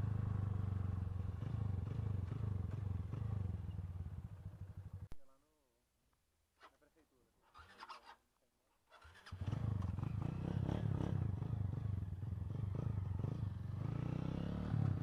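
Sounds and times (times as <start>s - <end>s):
motorcycle engine running: 0.0s - 5.1s, 9.1s - 15.0s.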